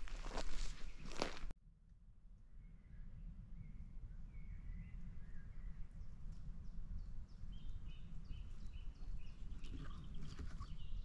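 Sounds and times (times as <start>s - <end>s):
small birds singing: 2.6s - 11.0s.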